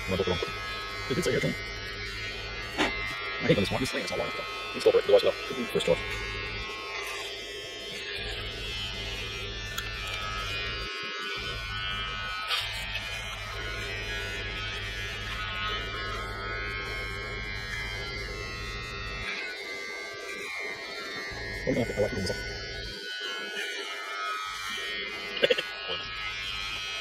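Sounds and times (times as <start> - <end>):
electric trimmer cutting hair: 0.0 - 27.0.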